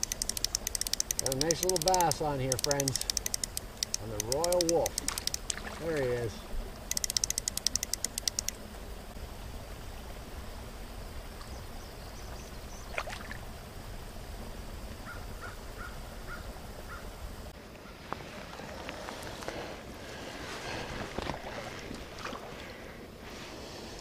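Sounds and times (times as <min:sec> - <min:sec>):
fly reel click drag ratcheting: 0:00.0 - 0:05.6, 0:06.9 - 0:08.6.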